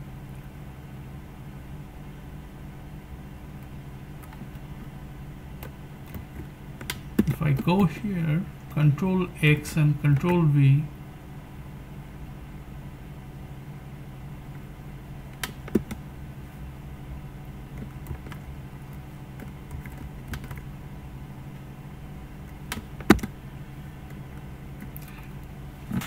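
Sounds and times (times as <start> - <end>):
steady low hum: 0.0 - 26.0
computer keyboard keystrokes: 15.4 - 16.0, 17.8 - 20.7, 22.7 - 23.4.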